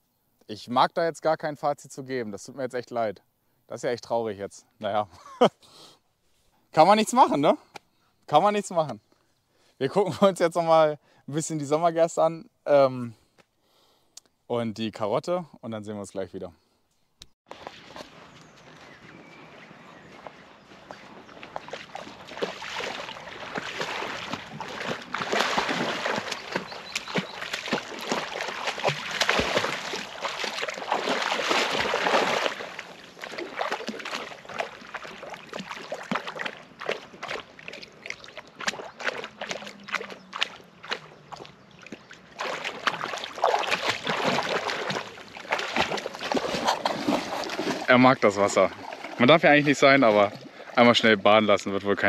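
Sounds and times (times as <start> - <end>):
dog splashing in water: 17.5 - 50.8.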